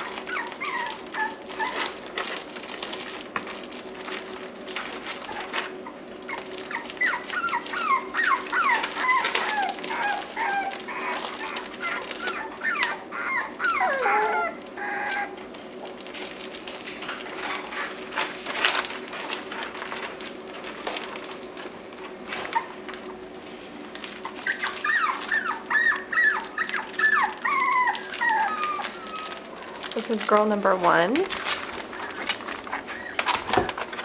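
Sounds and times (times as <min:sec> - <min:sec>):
puppies whimpering: 0:00.0 - 0:02.1, 0:05.1 - 0:15.5, 0:24.1 - 0:29.9, 0:31.6 - 0:34.0.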